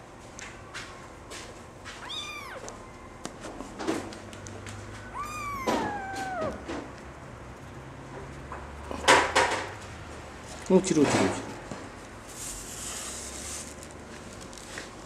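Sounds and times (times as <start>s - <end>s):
kitten mewing: 2.0s - 2.7s, 5.0s - 6.7s.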